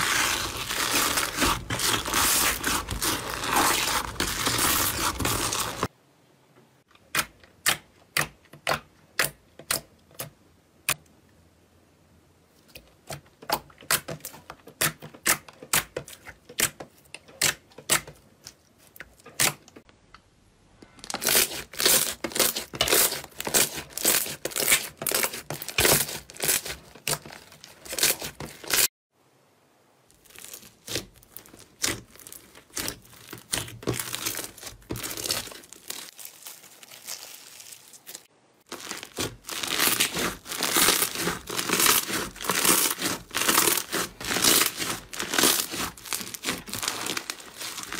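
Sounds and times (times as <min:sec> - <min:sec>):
crunchy slime crackle: 0:00.0 - 0:05.9, 0:20.9 - 0:28.9, 0:30.1 - 0:47.9.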